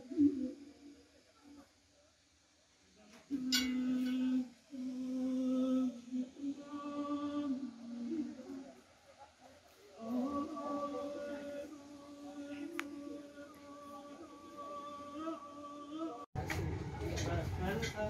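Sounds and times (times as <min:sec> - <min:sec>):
person humming a slow tune: 0:03.2 - 0:08.8, 0:10.0 - 0:16.2.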